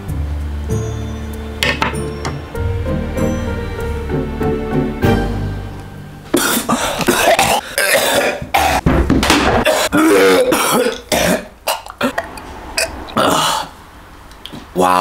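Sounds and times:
man coughing and gagging: 6.3s - 8.8s, 9.6s - 12.2s
throaty retching: 6.4s - 8.8s, 9.6s - 13.8s.

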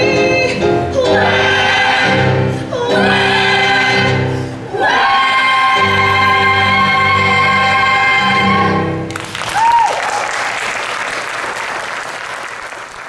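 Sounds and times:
vocal ensemble holding a chord: 0.0s - 9.2s
audience applause: 9.1s - 13.0s
person cheering: 9.4s - 10.5s.

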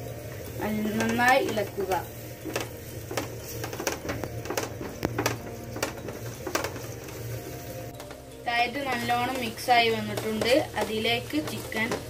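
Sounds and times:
spatula scraping a frying pan: 0.3s - 12.0s.

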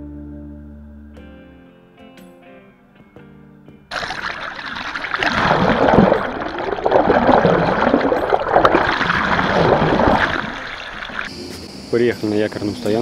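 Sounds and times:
water rushing and gurgling underwater: 3.9s - 11.3s.

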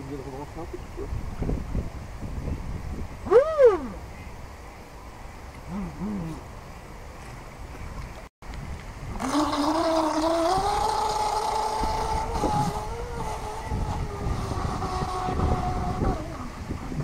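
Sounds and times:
electric motor whine: 9.2s - 17.0s.

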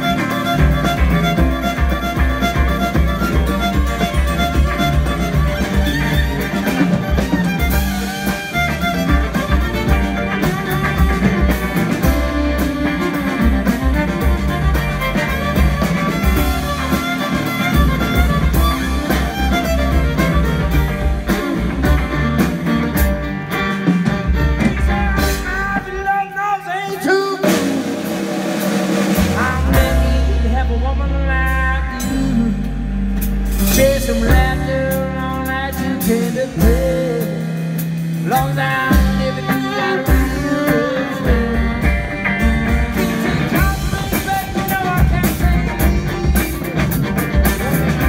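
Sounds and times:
lead line with bending notes: 0.0s - 26.0s
live band playing: 0.0s - 48.0s.

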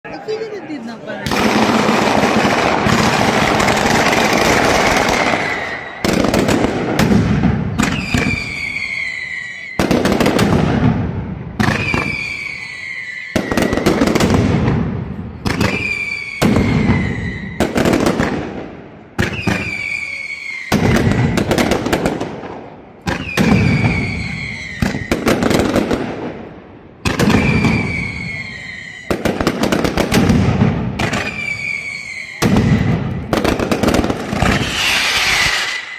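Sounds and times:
loud firecracker barrage: 1.2s - 35.9s
falling firework whistles: 4.4s - 6.4s, 7.7s - 9.9s, 11.6s - 14.3s, 15.5s - 17.8s, 19.2s - 21.5s, 23.1s - 25.4s, 27.2s - 29.2s, 31.0s - 33.6s, 34.4s - 35.9s.

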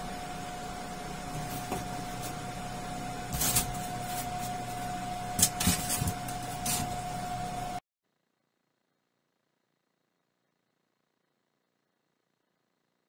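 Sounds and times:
rework station whine and hum: 0.0s - 7.8s.

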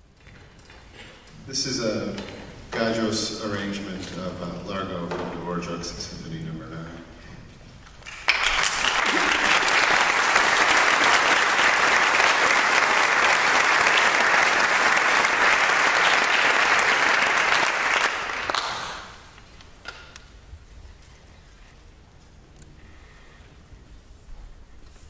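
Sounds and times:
audience applauding: 8.0s - 19.4s.

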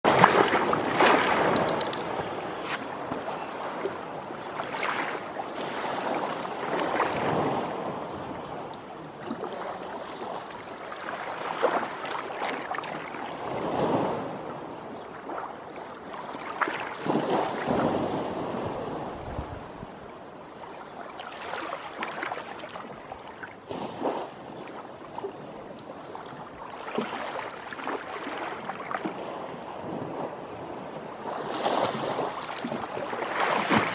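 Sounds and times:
small waves lapping on rocks: 0.1s - 7.9s, 9.2s - 14.2s, 15.1s - 18.8s, 31.2s - 33.9s.

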